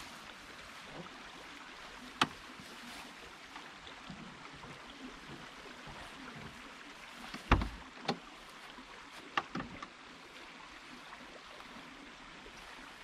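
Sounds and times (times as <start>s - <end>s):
van door clunk: 7.4s - 7.8s.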